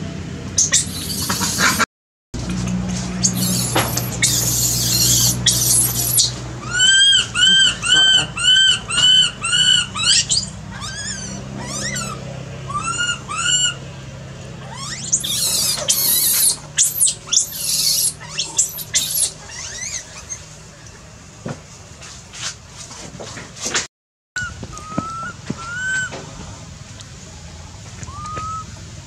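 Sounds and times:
baby monkey screaming: 0.6 - 1.9, 3.2 - 13.9, 14.5 - 20.5, 24.4 - 26.2, 28.1 - 28.7.

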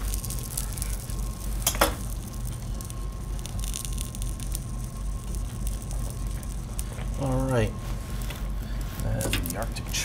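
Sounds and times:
hot oil crackling: 0.0 - 10.0
steady low hum: 0.0 - 10.0.

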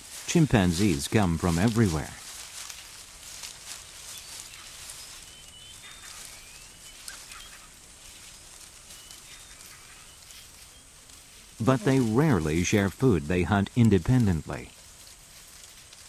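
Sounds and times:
faint clicks and rustles: 0.0 - 16.0
steady forest hiss: 0.0 - 16.0
high bird chirps: 4.1 - 7.7.

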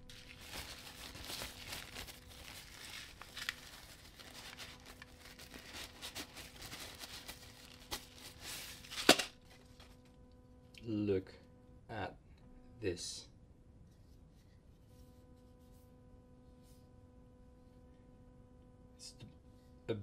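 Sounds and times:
wrapping sheet crinkling: 0.0 - 10.0.

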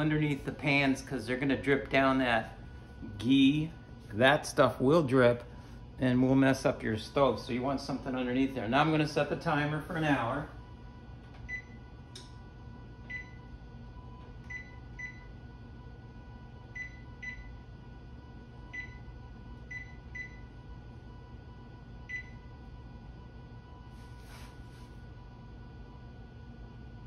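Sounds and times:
oven keypad beeping: 11.4 - 11.9, 13.0 - 13.6, 14.2 - 15.5, 16.7 - 17.7, 18.7 - 20.6, 22.0 - 22.5.

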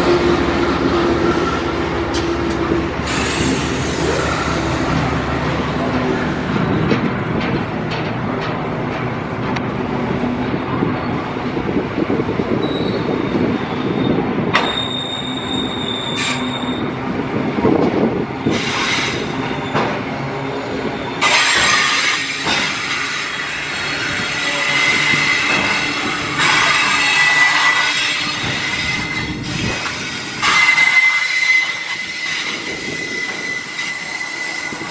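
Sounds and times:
train wheels rumbling on rails: 0.0 - 34.9
high-pitched wheel squeal: 12.6 - 17.0, 21.0 - 34.9
hissing wheel squeal: 12.6 - 17.0, 21.0 - 34.9.

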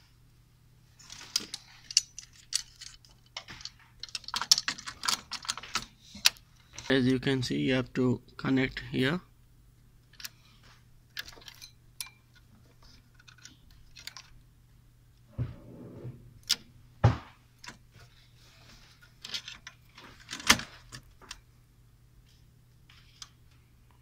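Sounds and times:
knocks: 17.0 - 17.4.

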